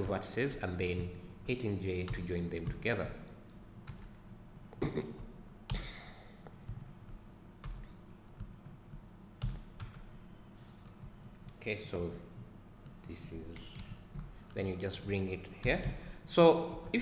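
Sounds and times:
computer mouse clicks: 6.4 - 10.0.

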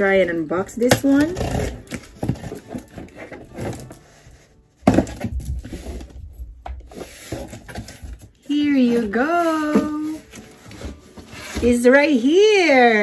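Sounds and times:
cardboard box being torn open: 1.2 - 4.0.

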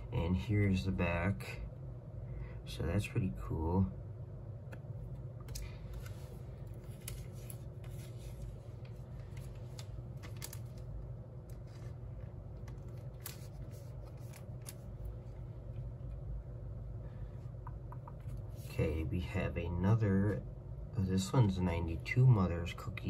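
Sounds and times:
steady low hum: 0.0 - 23.0
cards being shuffled: 5.4 - 15.4.

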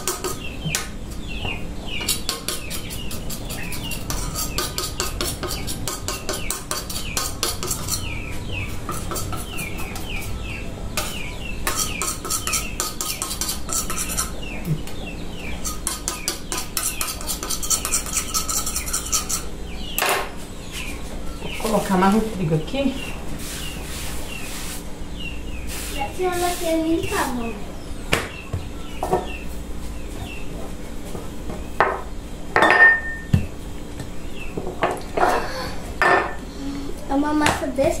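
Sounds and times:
knife scraping on work surface: 0.0 - 0.5, 2.0 - 10.3, 11.0 - 14.4, 15.6 - 19.5
bird chirping: 0.0 - 30.7.

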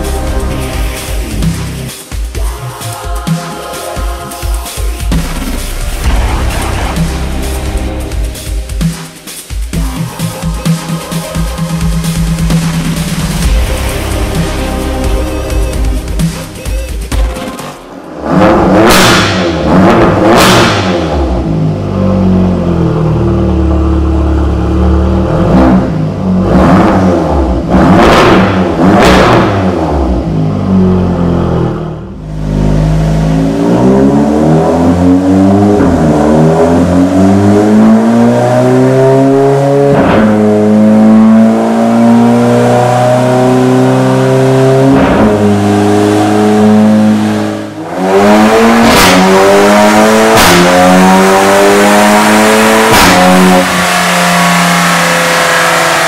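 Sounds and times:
car engine revving: 0.0 - 2.0, 4.9 - 56.0
engine accelerating through gears: 17.4 - 56.0
exhaust cracks: 39.6 - 42.4, 43.5 - 56.0.

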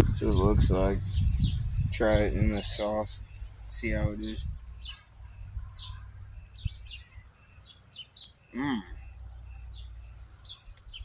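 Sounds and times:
wind rumble on microphone: 0.0 - 7.3
small birds chirping: 0.0 - 11.0.

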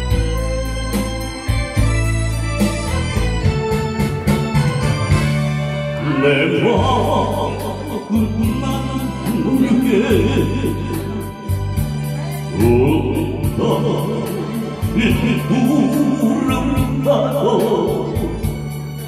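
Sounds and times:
keyboard backing music: 0.0 - 19.0
man singing into microphone: 6.0 - 11.6, 12.5 - 18.6.

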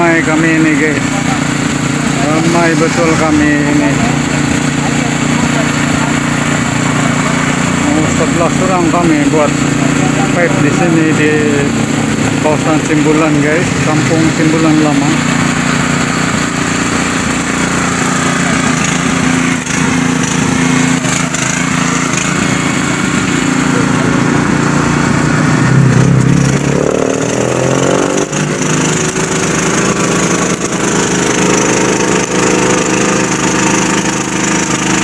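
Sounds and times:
welding generator engine droning: 0.0 - 35.0.

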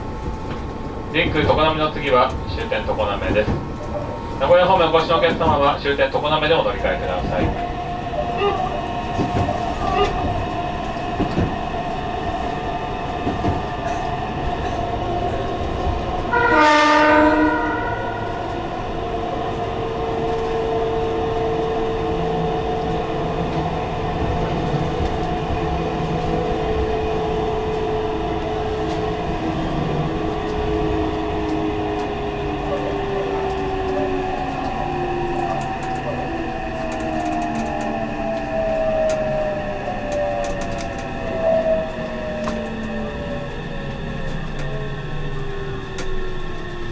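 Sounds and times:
electric train running noise: 0.0 - 46.9
train horn: 16.3 - 18.6.

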